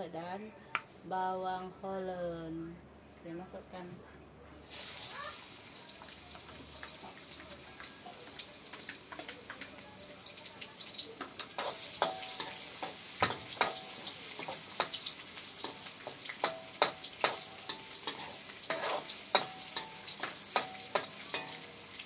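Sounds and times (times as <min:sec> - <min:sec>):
food sizzling in hot oil: 0:04.6 - 0:22.0
ladle scraping metal wok: 0:17.3 - 0:21.7.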